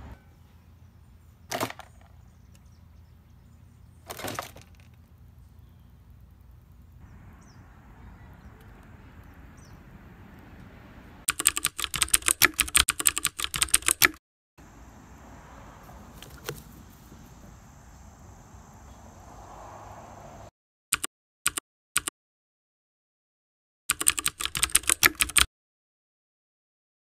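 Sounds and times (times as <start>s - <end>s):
outdoor background noise: 0.0s - 20.5s
keyboard typing clicks: 11.3s - 14.2s, 21.0s - 22.1s, 23.9s - 25.5s
high insect drone: 14.6s - 20.5s.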